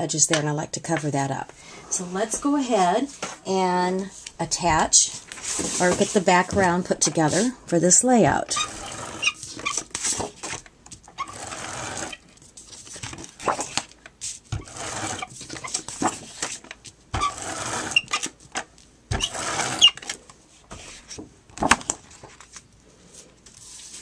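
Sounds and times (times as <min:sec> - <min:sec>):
paper rustling: 0:05.1 - 0:07.5, 0:09.3 - 0:11.2, 0:12.4 - 0:14.5, 0:15.2 - 0:16.8, 0:20.7 - 0:24.0
tape gun whirring: 0:17.2 - 0:18.4, 0:19.1 - 0:20.2.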